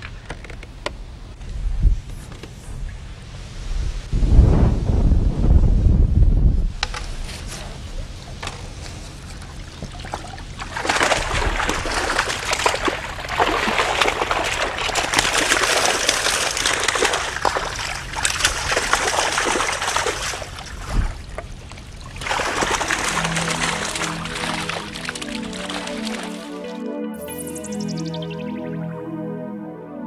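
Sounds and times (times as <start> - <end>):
water splashing from a net: 8.2 - 26.6.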